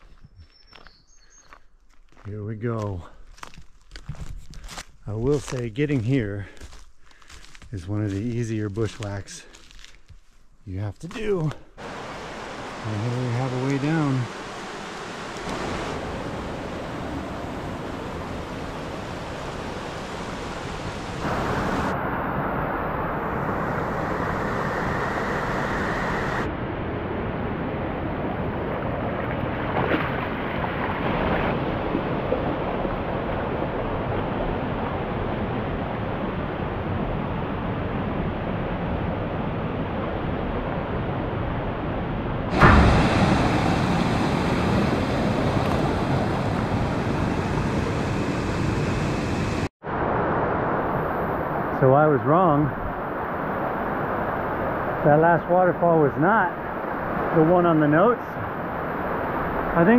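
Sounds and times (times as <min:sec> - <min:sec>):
creek running over rocks: 0:11.1 - 0:21.1.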